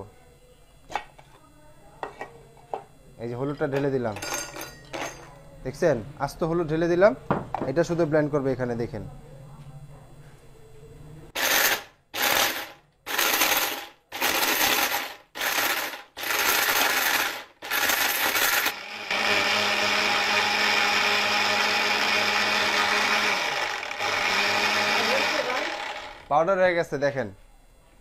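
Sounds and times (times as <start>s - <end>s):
mixer grinder chopping: 11.4s - 26.4s.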